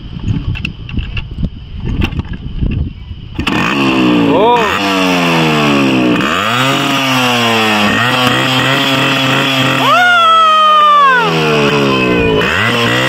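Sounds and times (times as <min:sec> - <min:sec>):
motorcycle engine revving: 0:03.3 - 0:13.0.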